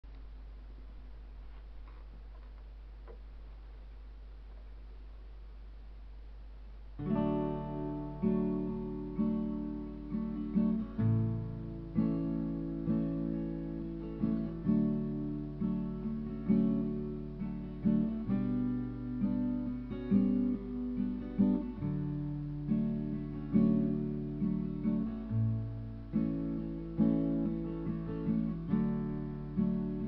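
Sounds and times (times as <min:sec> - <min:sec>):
acoustic guitar strummed chords: 0:06.9 - 0:30.0.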